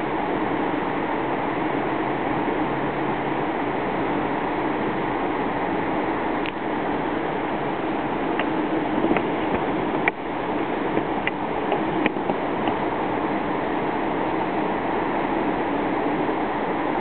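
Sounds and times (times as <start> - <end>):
river rushing: 0.0 - 17.0.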